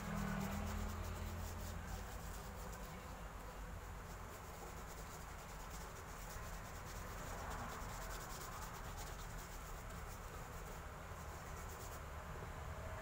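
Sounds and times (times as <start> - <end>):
paintbrush bristle strokes: 0.0 - 12.2
low steady hum: 0.0 - 13.0.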